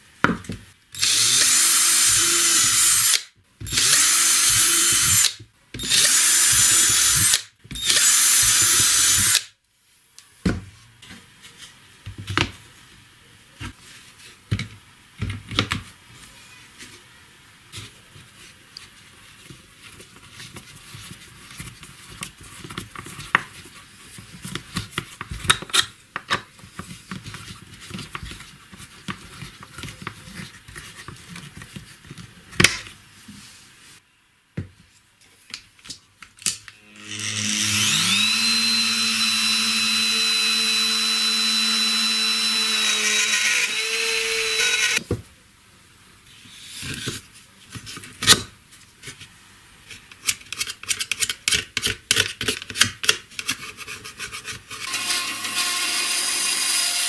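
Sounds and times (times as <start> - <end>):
electric motor whining: 36.8 - 45.0.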